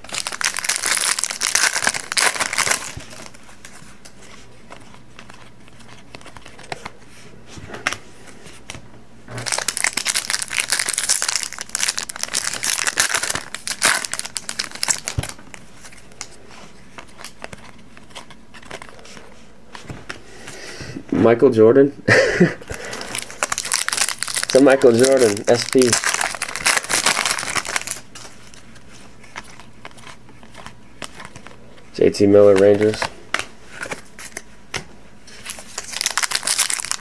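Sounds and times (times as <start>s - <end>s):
wrappers torn and crumpled: 0.0s - 3.4s, 9.4s - 16.3s, 22.7s - 28.6s, 35.4s - 37.0s
handling of cards: 0.0s - 20.6s, 22.7s - 37.0s.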